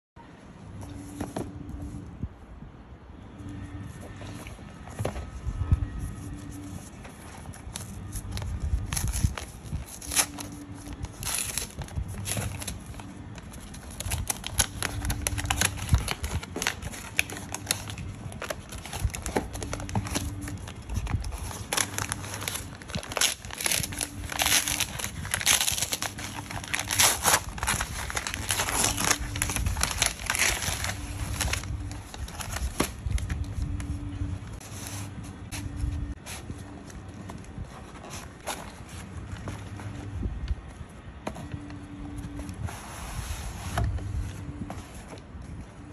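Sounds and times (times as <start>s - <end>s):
wrapping paper crinkling: 6.2s - 40.1s.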